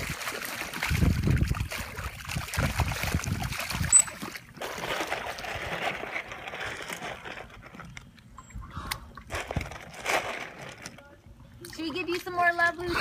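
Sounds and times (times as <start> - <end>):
water lapping: 0.0 - 13.0
water splashing: 0.0 - 13.0.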